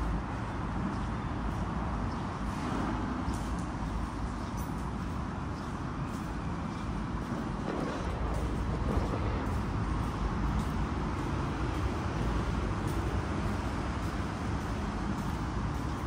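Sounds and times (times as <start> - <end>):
low urban rumble: 0.0 - 16.0.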